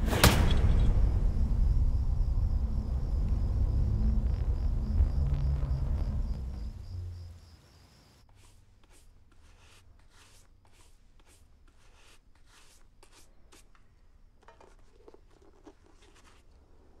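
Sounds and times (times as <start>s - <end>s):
rubbing strokes on pistol: 8.3s - 13.7s.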